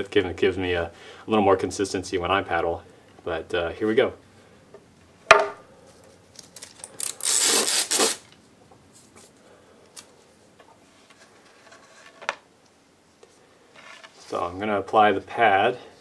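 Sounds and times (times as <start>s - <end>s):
wooden paddle knocking: 5.3s - 5.6s
scraping rustle: 10.8s - 12.4s, 13.7s - 14.7s.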